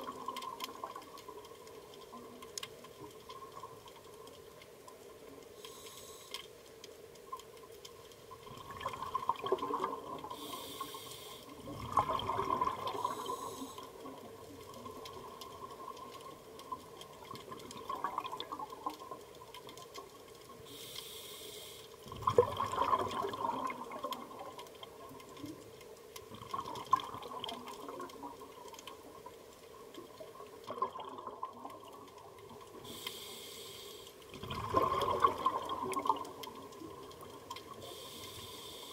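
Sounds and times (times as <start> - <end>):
water gurgles: 0.0 - 21.0, 21.9 - 38.9
faint steady hum: 0.0 - 38.9
regulator inhalation hiss: 5.6 - 6.4, 10.2 - 11.6, 12.9 - 14.0, 20.6 - 22.0, 32.8 - 34.2, 37.8 - 38.9
exhaled bubbles bursting: 8.4 - 10.4, 11.6 - 13.5, 17.1 - 19.1, 22.1 - 24.6, 26.4 - 28.7, 30.6 - 32.6, 34.3 - 37.8.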